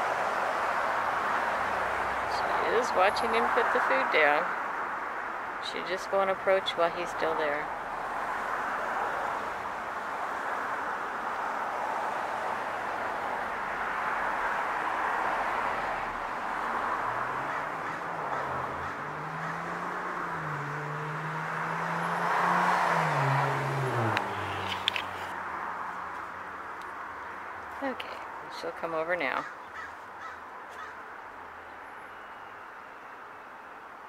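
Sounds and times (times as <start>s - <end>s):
vehicle engine hum: 0.0s - 33.7s
background traffic noise: 0.0s - 34.0s.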